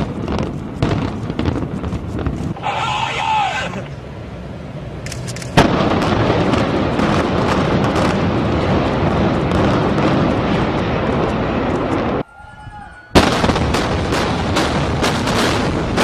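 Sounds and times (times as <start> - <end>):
building collapsing rumble: 5.6 - 12.2
loud demolition blast: 13.2 - 16.0.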